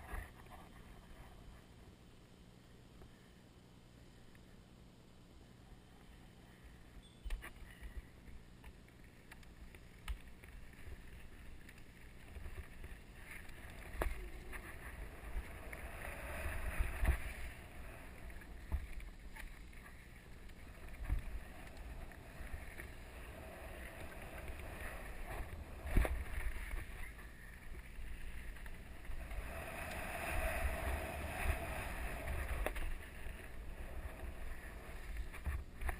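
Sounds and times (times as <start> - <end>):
wind on microphone: 28.9 - 35.9.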